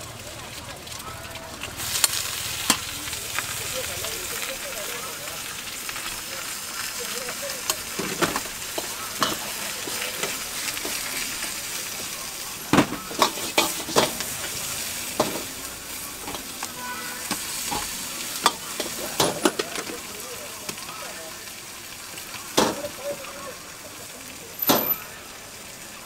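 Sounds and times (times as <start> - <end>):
greens sizzling in a wok: 0.0 - 26.0
metal utensils scraping a wok: 7.3 - 11.7, 12.8 - 20.0.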